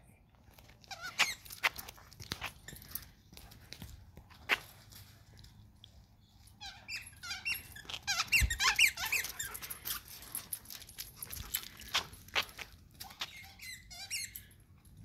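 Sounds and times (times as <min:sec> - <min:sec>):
squeaky toy squeaking: 0:00.9 - 0:01.8, 0:06.6 - 0:10.2, 0:13.0 - 0:14.5.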